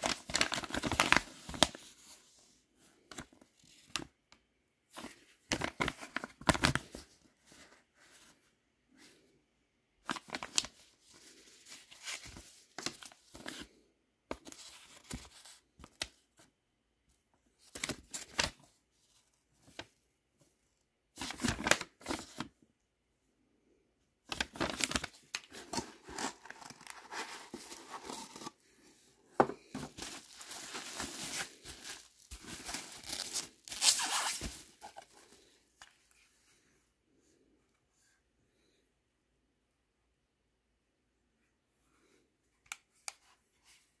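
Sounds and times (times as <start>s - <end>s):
paper leaflet rustling: 29.4s - 35.1s
bubble wrap crinkling: 29.8s - 35.0s.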